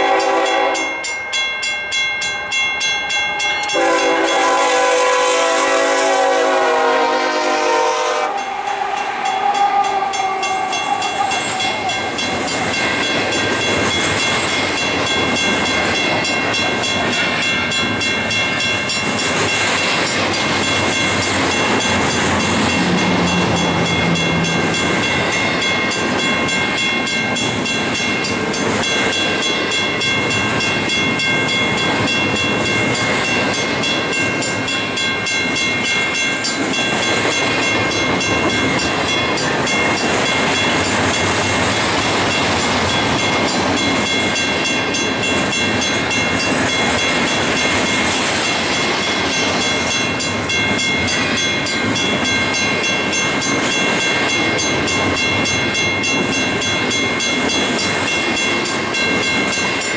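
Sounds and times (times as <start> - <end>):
locomotive air horn chord: 0.0 - 1.0, 3.6 - 10.8
train wheels rumbling on rails: 0.0 - 59.9.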